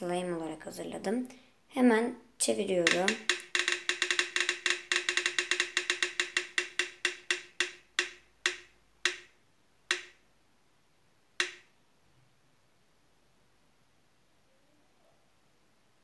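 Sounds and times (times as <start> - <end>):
spinning wheel app ticking: 2.8 - 9.3, 9.9 - 10.2, 11.4 - 11.7.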